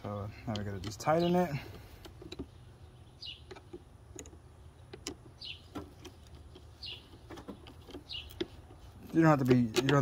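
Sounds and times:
hand tool clicking: 6.0s - 10.0s.

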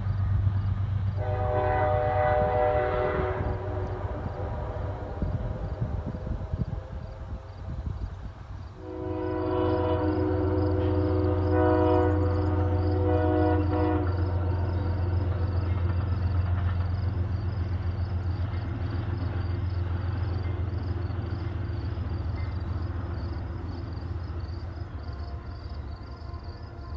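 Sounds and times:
train low rumble: 0.0s - 26.9s
train multi-chime horn: 1.2s - 5.3s, 8.8s - 16.9s, 24.7s - 26.9s.

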